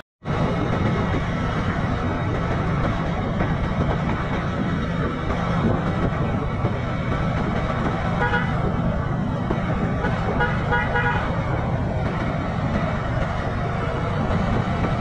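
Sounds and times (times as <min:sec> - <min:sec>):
vehicle rumbling on road: 0:00.2 - 0:15.0
vehicle horn: 0:08.2 - 0:08.6, 0:10.0 - 0:11.4.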